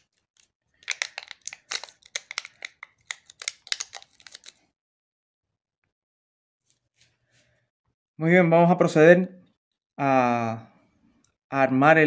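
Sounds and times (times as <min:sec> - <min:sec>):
foil wrap crinkling and crackling: 0:00.0 - 0:04.6.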